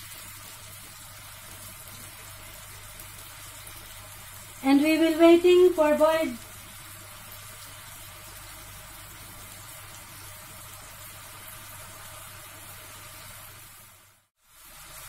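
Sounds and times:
sauce bubbling in frying pan: 0.0s - 15.0s.

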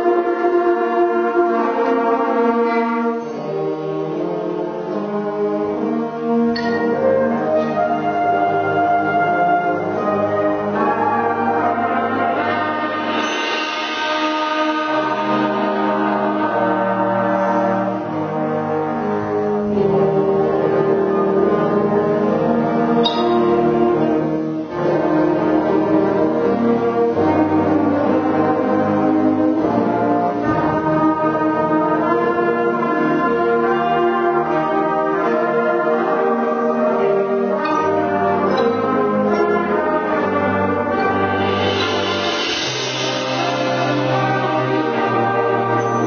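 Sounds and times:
brass chords: 0.0s - 46.0s
concert band playing: 0.0s - 46.0s
percussion strikes: 6.3s - 7.9s, 9.4s - 20.2s, 22.8s - 32.3s, 37.5s - 46.0s.

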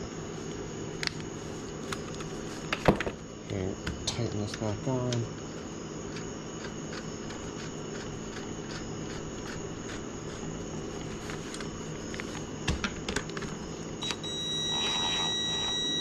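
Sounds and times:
steady background hum: 0.0s - 16.0s
power tool motor whine: 13.8s - 16.0s.

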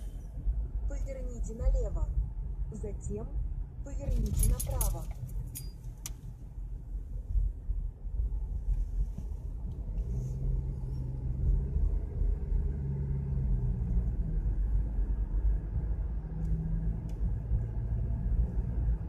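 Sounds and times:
car engine hum: 0.0s - 19.0s
car road rumble: 0.0s - 19.0s.

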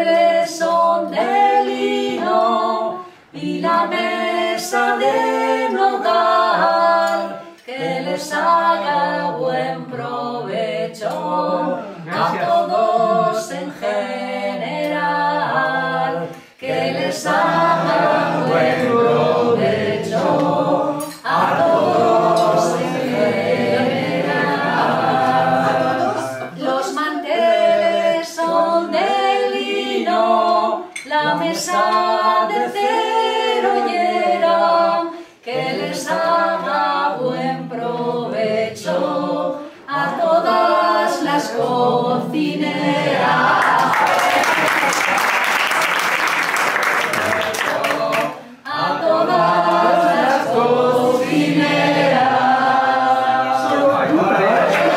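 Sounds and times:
man and woman singing unaccompanied: 0.0s - 45.2s, 47.0s - 54.9s
applause: 43.6s - 48.4s, 54.6s - 54.9s.

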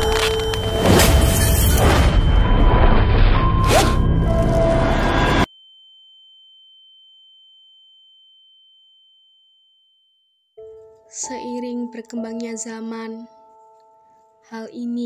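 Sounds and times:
thin high ringing tone: 0.0s - 11.0s.

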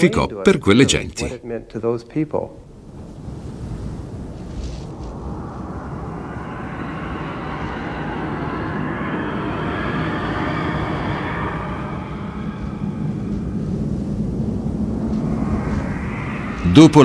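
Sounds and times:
steady rushing drone: 2.6s - 17.0s
faint high tones: 5.2s - 17.0s.

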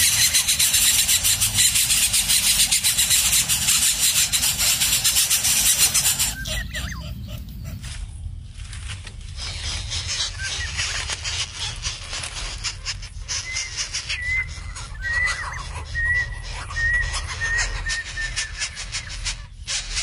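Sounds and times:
chicks raspy begging calls: 0.0s - 8.0s, 9.6s - 19.4s
thin whistled bird notes: 9.5s - 11.2s, 13.4s - 19.5s.

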